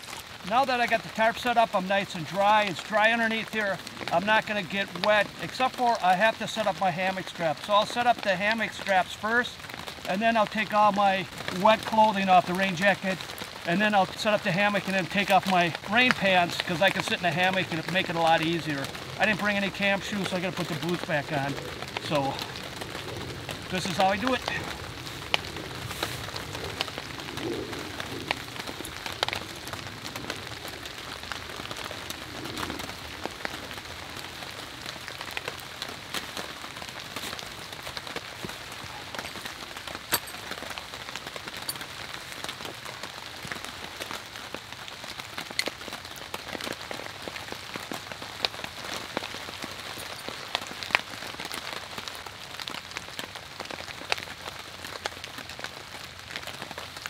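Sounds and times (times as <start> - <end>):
rain on a tarp: 0.0 - 57.0.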